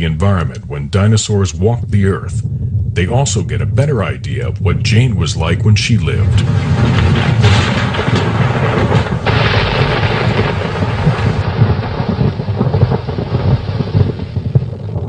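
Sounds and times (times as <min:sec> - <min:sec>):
low rumbling noise: 0:00.0 - 0:15.0
crackling knocks: 0:05.7 - 0:15.0.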